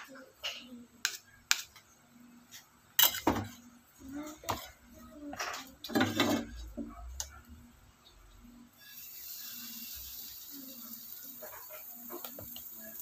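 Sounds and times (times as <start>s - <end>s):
frying pan and utensils clattering: 3.0s - 3.6s, 4.4s - 7.0s, 11.2s - 13.0s.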